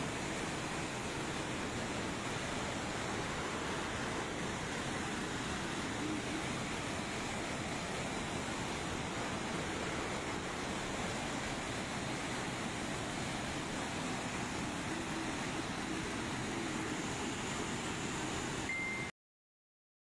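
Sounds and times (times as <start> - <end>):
heavy rain: 0.0 - 18.7
floodwater rushing downhill: 0.0 - 19.1.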